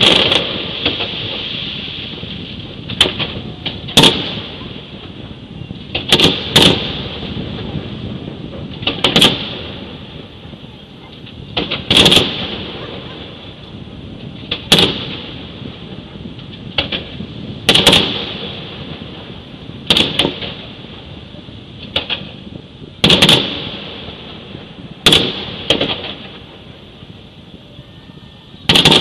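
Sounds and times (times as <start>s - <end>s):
small firework pops: 0.0s - 7.8s, 8.4s - 9.9s, 11.0s - 13.0s, 14.4s - 15.3s, 16.3s - 18.6s, 19.9s - 20.7s, 21.8s - 24.4s, 25.0s - 26.5s, 28.7s - 29.0s
firework shells bursting with bangs: 0.0s - 27.2s, 28.6s - 29.0s.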